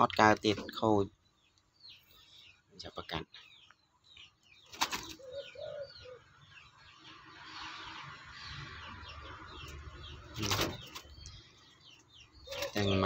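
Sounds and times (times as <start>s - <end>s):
small birds chirping: 0.0s - 13.0s
dove cooing: 4.9s - 6.3s, 12.4s - 13.0s.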